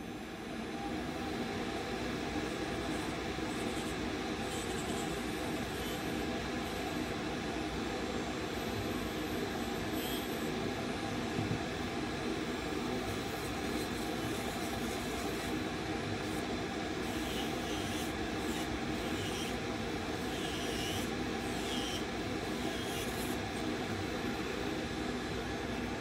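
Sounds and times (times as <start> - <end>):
suction fan running: 1.5 - 26.0.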